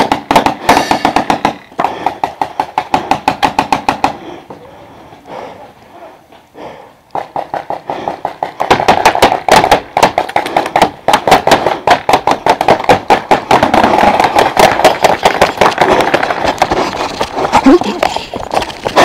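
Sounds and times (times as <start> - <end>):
paintball pistols firing: 7.1 - 16.6.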